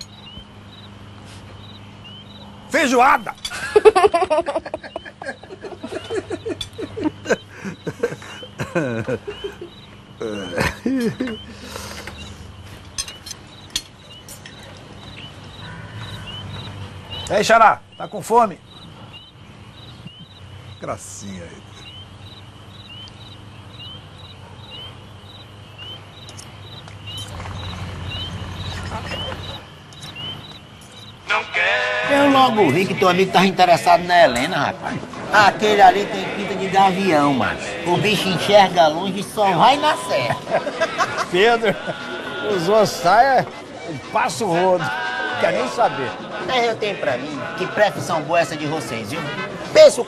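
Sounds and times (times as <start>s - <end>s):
crickets chirping: 0.0s - 50.0s
people laughing: 3.4s - 12.2s, 19.9s - 20.5s, 28.6s - 29.7s, 31.3s - 50.0s
girl giggling: 3.5s - 11.6s.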